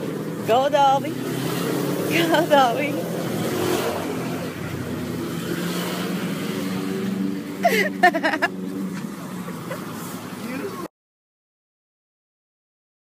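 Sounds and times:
car driving past: 1.1 - 10.9.

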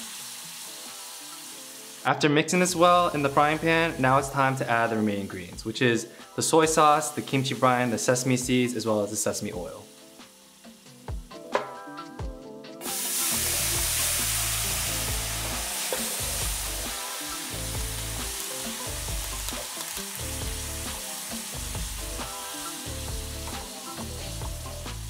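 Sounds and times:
loud sizzle of frying rice: 0.0 - 12.0, 12.8 - 25.0
liquid poured into hot pan: 12.8 - 22.9.

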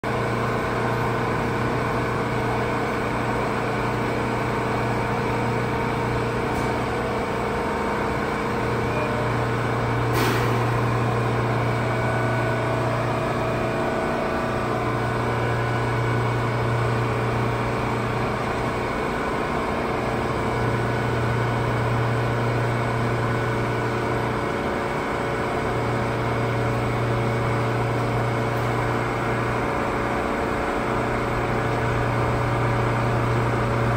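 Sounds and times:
low intermittent drone: 8.0 - 24.4.

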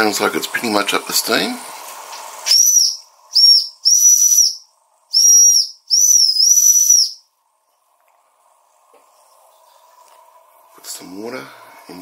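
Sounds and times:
steam whistle toots: 2.4 - 7.2.

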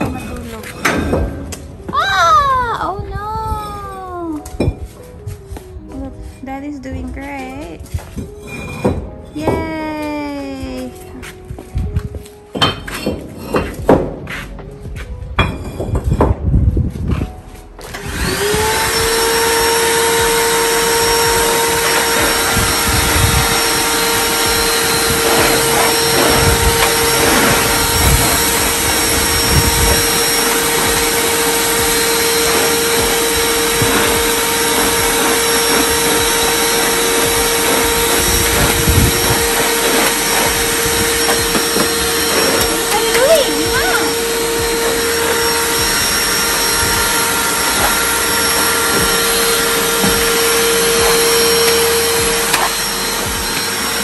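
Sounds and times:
vacuum cleaner running: 0.0 - 1.9, 16.1 - 54.0.

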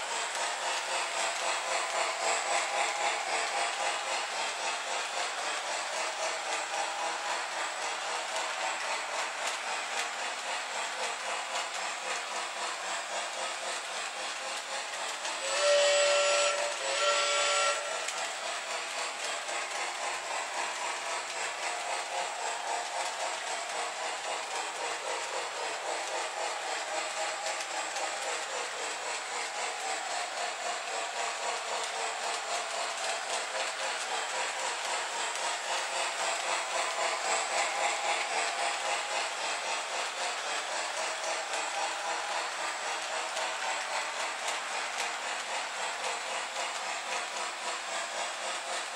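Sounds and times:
model train rolling on track: 0.0 - 48.9
steam whistle blasts: 15.4 - 18.1.

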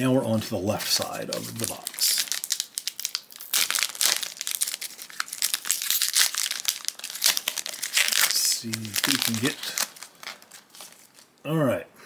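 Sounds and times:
foil wrapper crinkling: 1.1 - 11.4.

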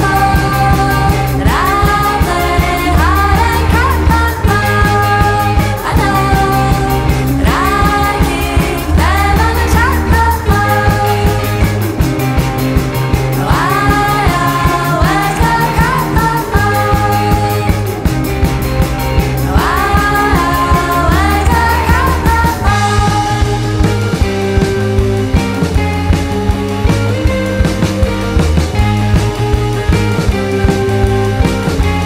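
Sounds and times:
voice singing held tones: 0.0 - 11.8, 13.3 - 18.1, 19.4 - 24.2
song with steady beat: 0.0 - 32.0.

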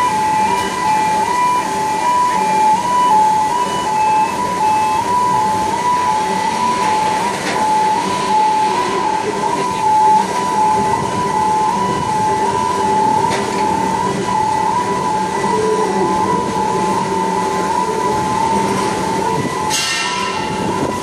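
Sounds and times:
two-tone warning alarm: 0.0 - 21.0.

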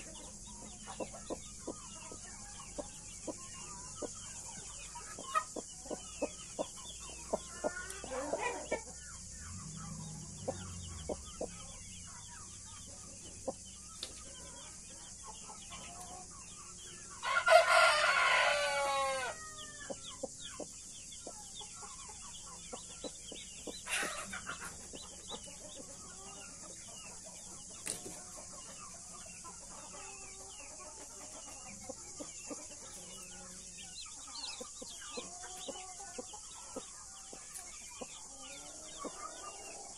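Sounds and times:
chicken calls: 0.0 - 39.9
chicks peeping: 0.0 - 39.9
rooster crowing: 17.2 - 20.0.

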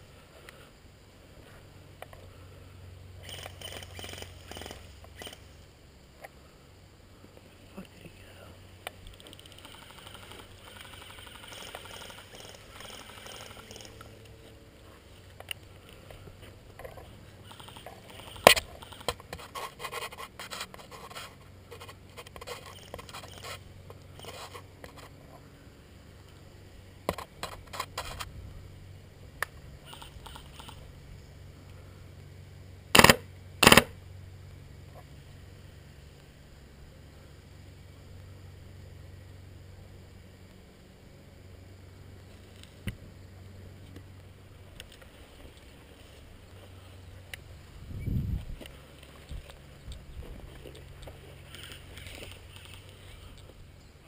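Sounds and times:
loud sharp bursts: 32.9 - 34.0.

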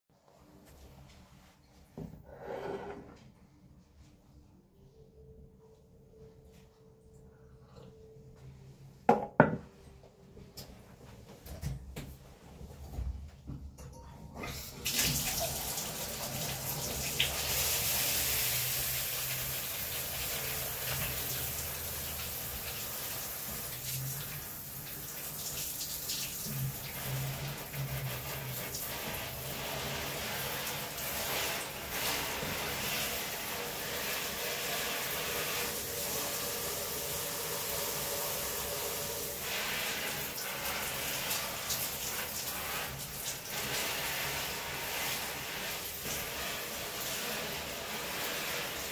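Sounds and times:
shower spray hissing: 14.7 - 48.9.

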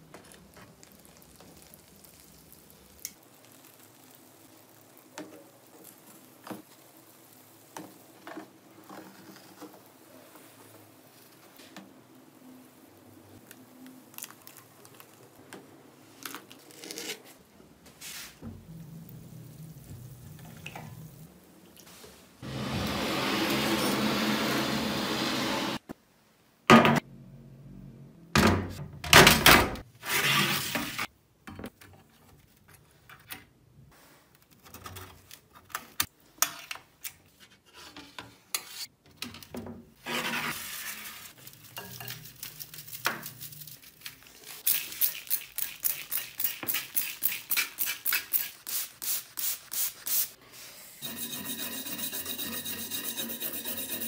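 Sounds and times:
blade knocking and scraping: 51.0 - 54.0
wire brush scrubbing metal: 51.0 - 54.0.

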